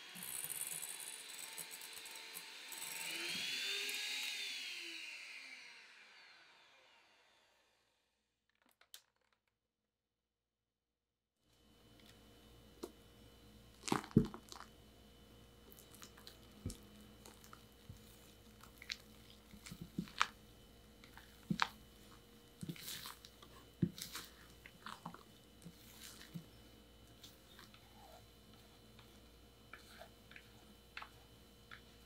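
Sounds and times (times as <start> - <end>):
spatula folding wet batter: 15.7 - 32.0.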